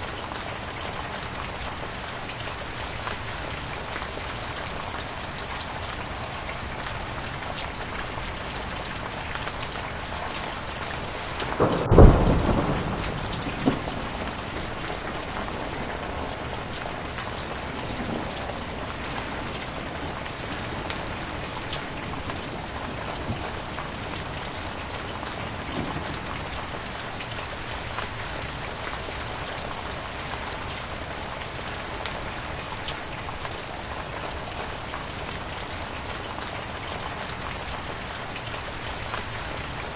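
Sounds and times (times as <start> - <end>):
heavy rain: 0.0 - 39.9
thunder clap rumbling: 10.8 - 27.1
thunder crack: 11.3 - 19.6.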